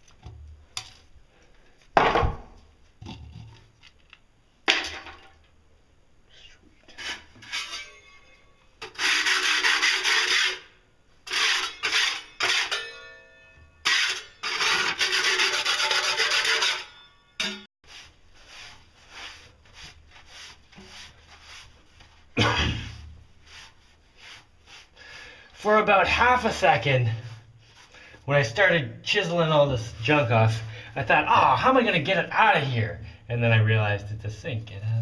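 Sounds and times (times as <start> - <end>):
scraping on a tiled sink: 8.8 - 12.8, 13.8 - 16.9.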